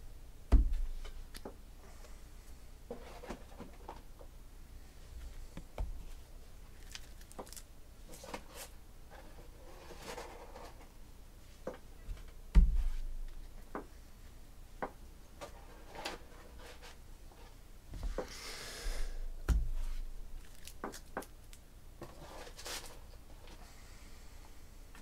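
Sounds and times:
plastic sleeve rustle: 6.0 - 8.7, 19.9 - 23.5.

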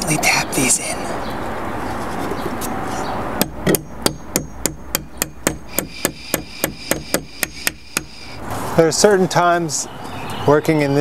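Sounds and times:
hammer tapping nails into wood: 3.4 - 8.1.

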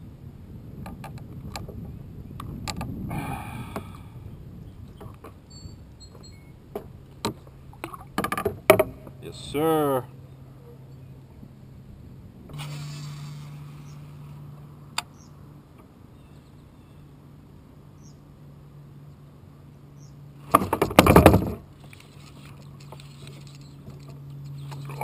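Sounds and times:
fishing rod clattering on kayak: 6.8 - 9.0.

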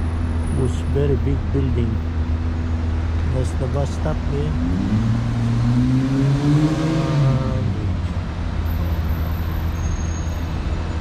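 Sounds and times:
low rumble of passing traffic: 0.0 - 11.0
vehicle engine accelerating: 3.2 - 11.0.

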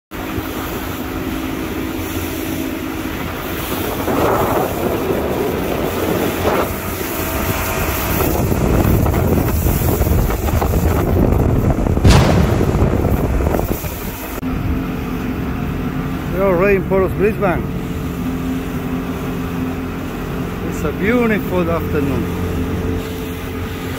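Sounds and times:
motorboat running: 0.1 - 23.9
wind buffeting microphone: 2.5 - 17.0.

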